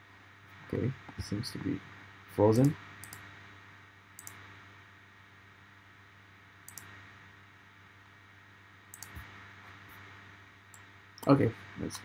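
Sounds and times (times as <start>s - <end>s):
low room hum: 0.0s - 12.0s
computer mouse clicks: 2.6s - 3.3s, 4.2s - 4.5s, 6.7s - 7.0s, 8.9s - 9.3s.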